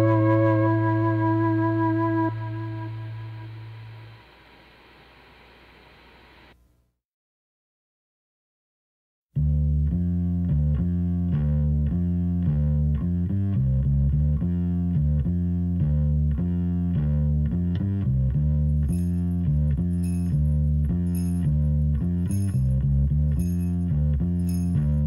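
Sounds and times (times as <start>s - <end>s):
bass guitar riff: 0.0s - 4.3s, 9.4s - 25.0s
high ticking percussion: 18.8s - 25.0s.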